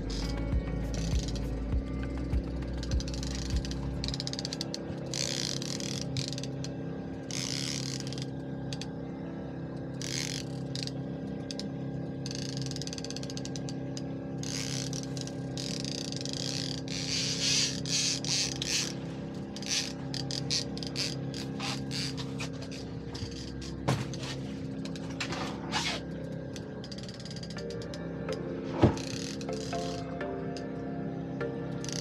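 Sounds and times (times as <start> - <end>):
fishing reel clicking and ratcheting: 0.0 - 6.7, 7.3 - 8.9, 9.9 - 11.6, 12.2 - 23.6, 26.0 - 28.4, 29.0 - 30.2, 31.8 - 32.0.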